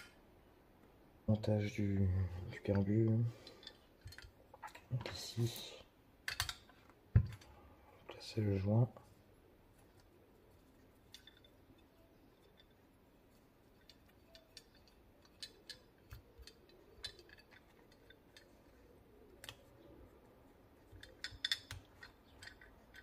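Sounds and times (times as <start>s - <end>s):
small metal parts clicking: 2.7s - 5.2s, 6.3s - 6.8s, 9.9s - 23.0s.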